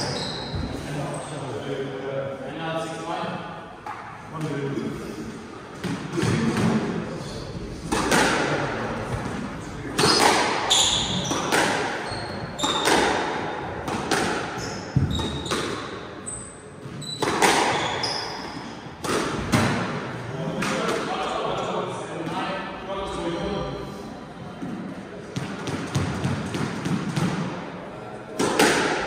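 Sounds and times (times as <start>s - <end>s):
shoes squeaking on wooden floor: 0.0s - 0.8s, 10.0s - 13.0s, 14.6s - 15.6s, 16.2s - 18.8s
squash ball hits echoing: 7.8s - 16.1s, 16.8s - 21.3s, 24.6s - 27.7s, 28.3s - 29.0s.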